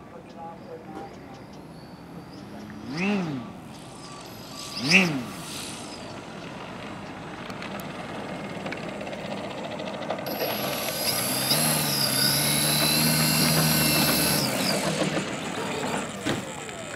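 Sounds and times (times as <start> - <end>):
electric model plane motor whine: 10.3 - 15.4.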